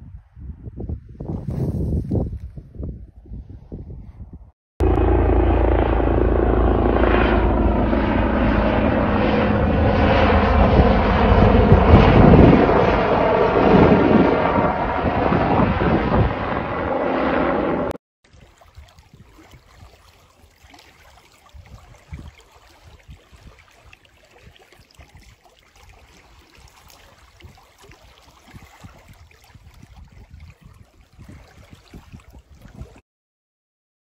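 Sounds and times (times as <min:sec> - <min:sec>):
wind buffeting microphone: 0:00.0 - 0:17.9, 0:21.4 - 0:25.4, 0:26.6 - 0:33.0
waves lapping on stony shore: 0:18.3 - 0:33.0.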